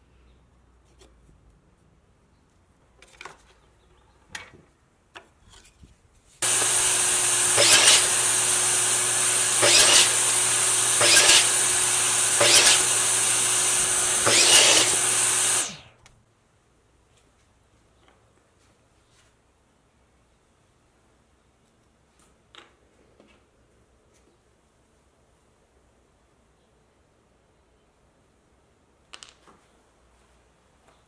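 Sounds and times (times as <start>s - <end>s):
saw blade cutting wood: 6.4s - 15.9s
miter saw running: 6.4s - 16.0s.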